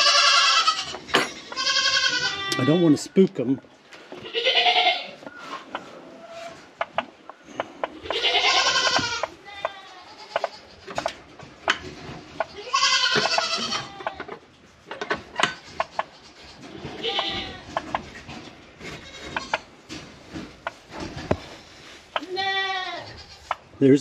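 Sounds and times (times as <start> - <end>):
farm animal wavering cries: 0.0 - 3.1, 4.1 - 6.8, 7.4 - 11.1, 12.3 - 14.4, 15.3 - 18.0, 22.1 - 23.6.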